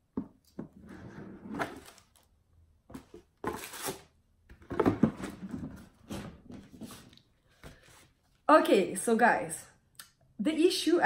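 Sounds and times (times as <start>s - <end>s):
packaging rustling and knocking: 2.9s - 6.8s.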